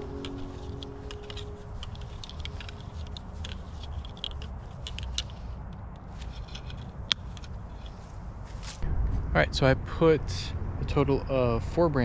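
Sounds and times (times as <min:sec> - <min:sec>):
leaves rustling: 0:00.0 - 0:05.6, 0:06.2 - 0:08.8
small metal clicks and scrapes: 0:00.0 - 0:08.2
low steady rumble: 0:00.0 - 0:12.0.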